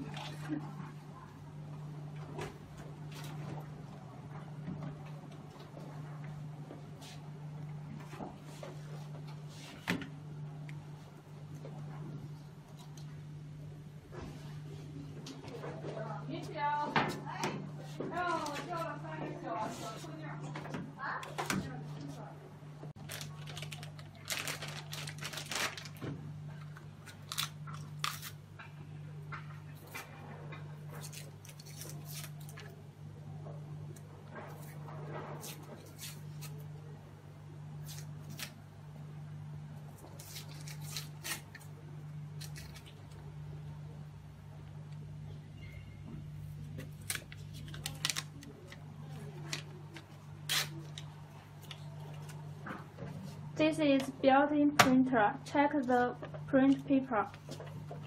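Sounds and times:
steady low hum: 0:00.0 - 0:58.0
crinkling and rustling: 0:22.9 - 0:28.3, 0:46.6 - 0:53.4.

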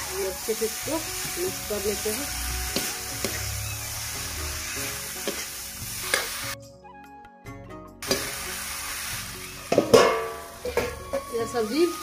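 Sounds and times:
vegetables sizzling in oil: 0:00.0 - 0:06.6, 0:08.0 - 0:12.0.

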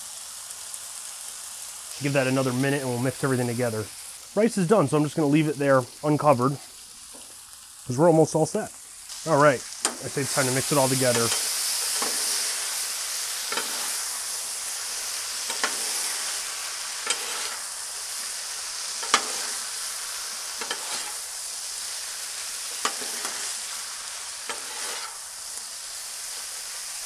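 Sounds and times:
meat and vegetables sizzling: 0:00.0 - 0:27.0
metal spatulas scraping griddle: 0:09.8 - 0:12.6, 0:13.5 - 0:14.0, 0:15.4 - 0:16.3, 0:17.0 - 0:17.7, 0:19.0 - 0:19.7, 0:20.6 - 0:21.2, 0:22.8 - 0:23.6, 0:24.4 - 0:25.2.

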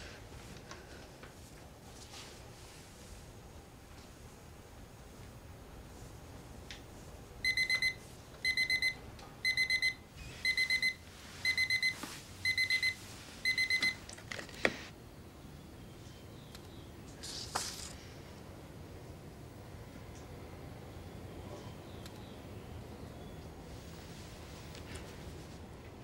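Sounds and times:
electronic alarm beeping: 0:07.4 - 0:14.0.

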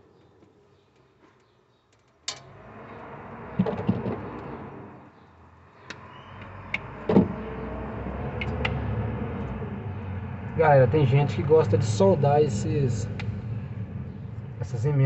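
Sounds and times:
steady low rumble: 0:06.6 - 0:15.0.

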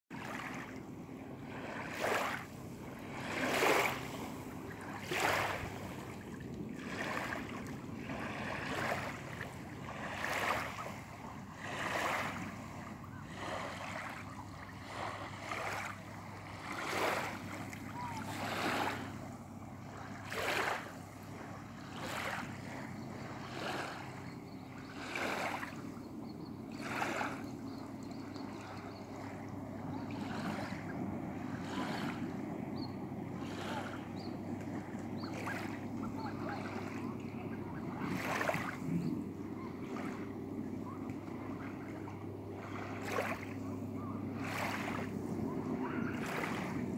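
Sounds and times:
small waves lapping: 0:00.1 - 0:46.9.

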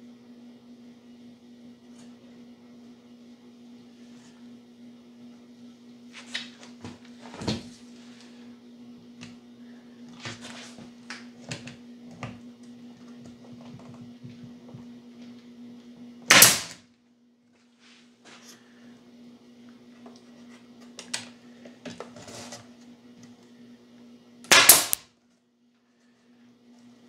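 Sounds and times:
steady low hum: 0:00.0 - 0:27.0
pneumatic stapler shot: 0:16.3 - 0:16.8, 0:24.5 - 0:25.0.

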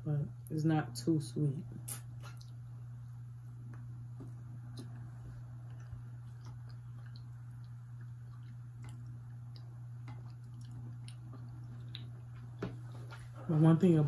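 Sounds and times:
steady low hum: 0:00.0 - 0:14.0
sticky clicks and squishes of chewing: 0:01.9 - 0:03.9, 0:04.7 - 0:12.7.

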